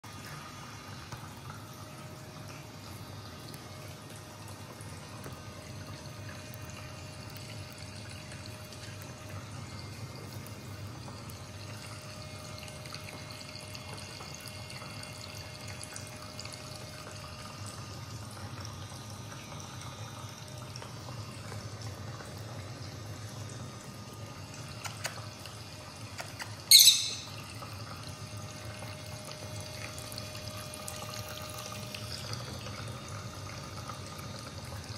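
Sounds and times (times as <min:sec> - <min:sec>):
low hiss and hum: 0:00.1 - 0:34.9
bird chirp: 0:26.7 - 0:27.4.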